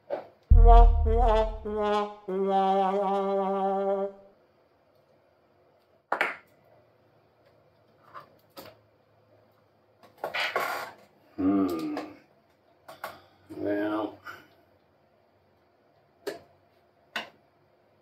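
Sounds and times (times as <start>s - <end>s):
sharp knock: 0.5s - 1.8s
sad trombone sound effect: 0.5s - 3.1s.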